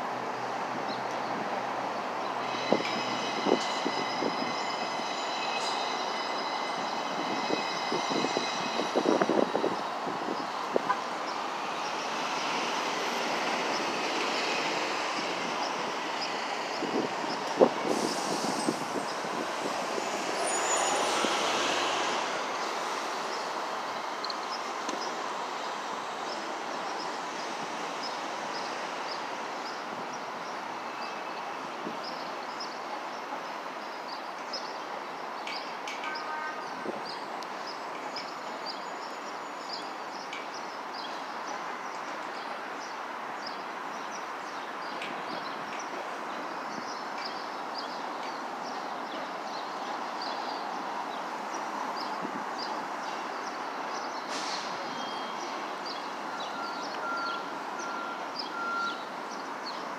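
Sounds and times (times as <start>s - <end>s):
freight train rolling by: 0.0s - 44.0s.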